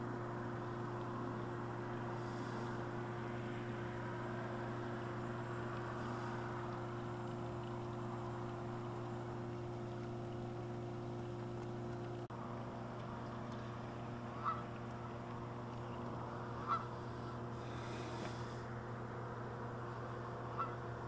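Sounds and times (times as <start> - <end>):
steady low hum: 0.0 - 21.0
geese honking: 14.3 - 14.7, 16.5 - 17.4, 20.5 - 20.8.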